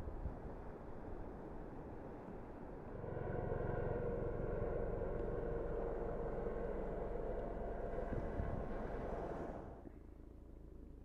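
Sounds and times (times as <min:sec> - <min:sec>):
turbine whine: 0:02.8 - 0:09.8.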